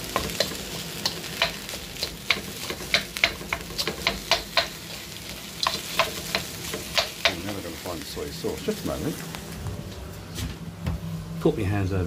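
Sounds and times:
rice sizzling in a hot pan: 0.0 - 9.6.

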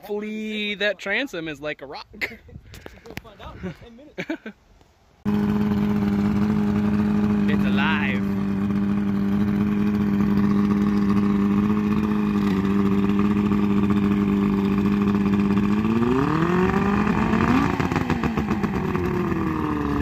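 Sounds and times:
outboard engine idling and revving: 5.2 - 20.0.

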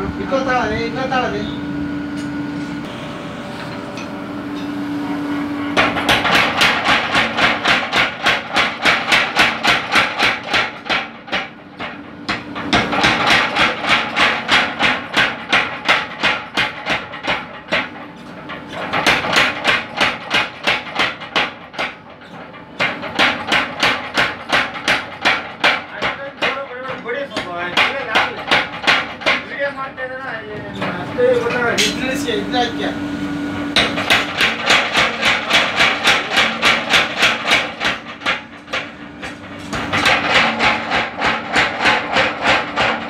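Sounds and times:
steady hum: 0.0 - 43.0.

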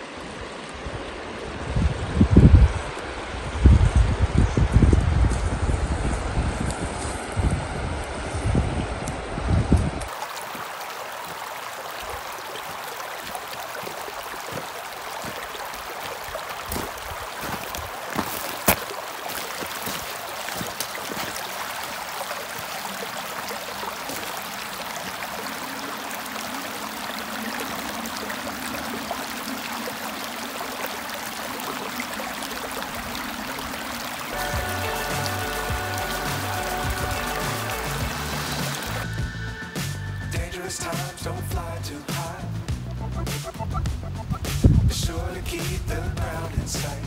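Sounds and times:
stream over rocky gravel: 0.0 - 39.3, 40.3 - 47.0
stones clicking underfoot: 16.6 - 21.5.

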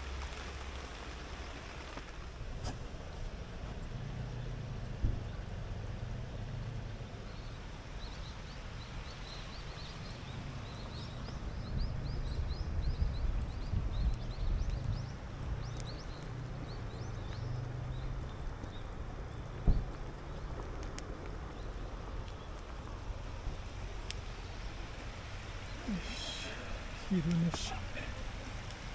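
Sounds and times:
small birds chirping: 7.1 - 20.5, 21.3 - 28.9.

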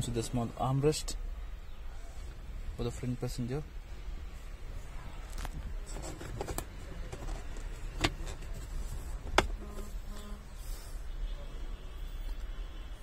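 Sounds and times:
handling noise in car cabin: 5.2 - 10.0.

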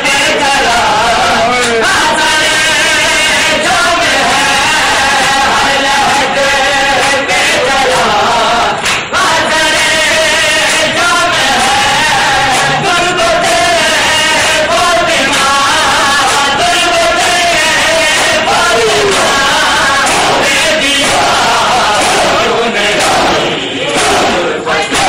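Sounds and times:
men chanting: 0.0 - 25.0
hands slapping chests: 8.8 - 9.1, 18.1 - 21.4.

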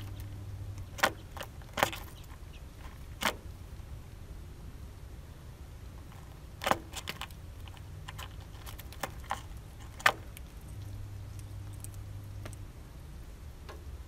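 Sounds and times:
bird pecking at seeds: 0.0 - 3.8, 5.9 - 12.7
low steady hum: 0.0 - 14.0.

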